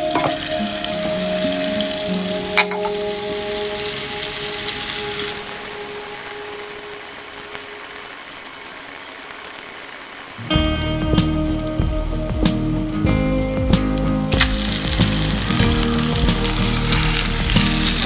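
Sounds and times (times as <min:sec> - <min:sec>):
soft background music: 0:00.0 - 0:08.3, 0:10.4 - 0:18.0
chicken sizzling in frying pan: 0:00.0 - 0:10.5, 0:14.2 - 0:18.0.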